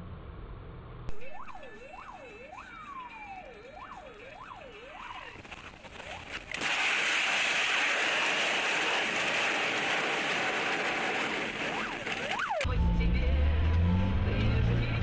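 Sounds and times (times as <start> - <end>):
wailing siren: 1.1 - 6.4, 7.8 - 12.8.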